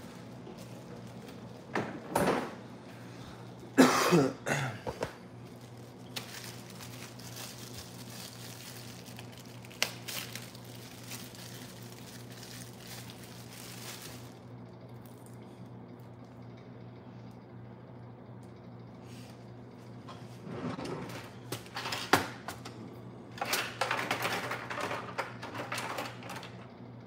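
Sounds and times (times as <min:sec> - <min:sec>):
man coughing: 0:03.7 - 0:05.2.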